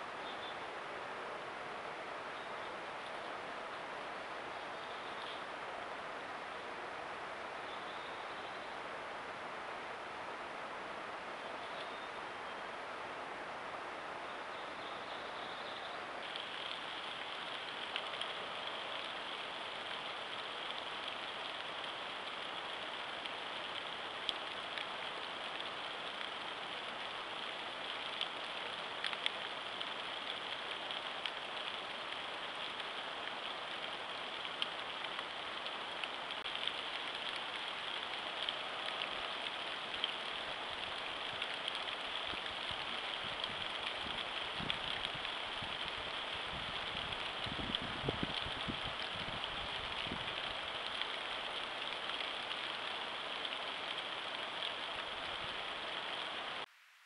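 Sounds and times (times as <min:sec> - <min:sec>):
outdoor hiss: 0:00.0 - 0:57.0
faint ticks: 0:05.0 - 0:05.5, 0:16.2 - 0:56.7.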